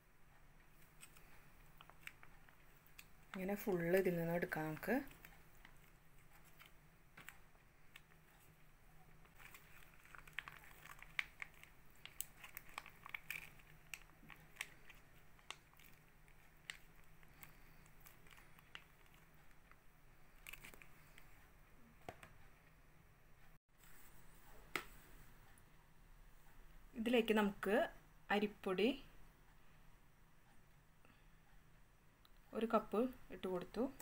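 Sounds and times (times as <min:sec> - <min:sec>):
foil packet crinkling: 0:09.3 - 0:19.5, 0:20.3 - 0:21.2.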